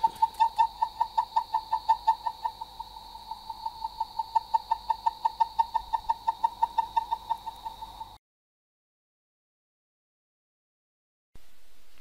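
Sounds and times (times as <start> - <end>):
faint high whine: 0.0 - 8.2, 11.4 - 12.0.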